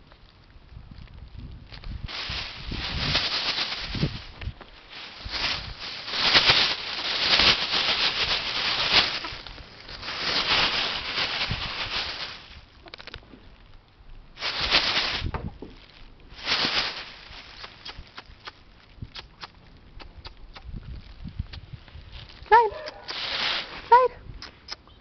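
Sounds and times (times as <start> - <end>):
plastic bag crinkling: 1.1 - 13.7, 14.4 - 18.9, 21.8 - 24.1
animals scuffling: 1.7 - 13.2, 14.4 - 18.6, 21.8 - 24.0.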